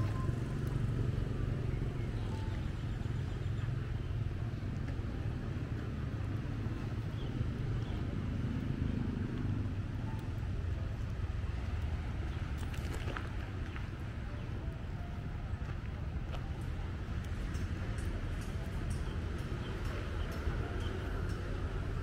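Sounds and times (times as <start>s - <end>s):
low outdoor rumble: 0.0s - 22.0s.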